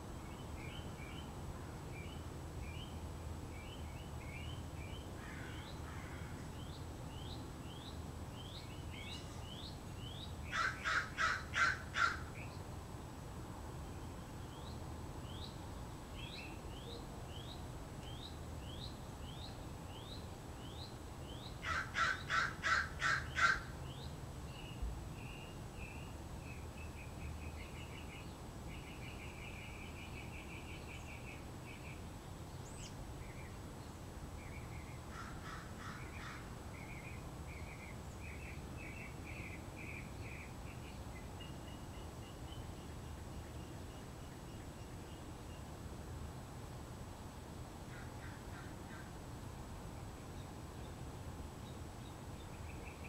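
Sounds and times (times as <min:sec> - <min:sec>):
crow cawing: 0:05.2 - 0:06.4, 0:10.5 - 0:12.3, 0:21.6 - 0:23.7, 0:35.1 - 0:36.4.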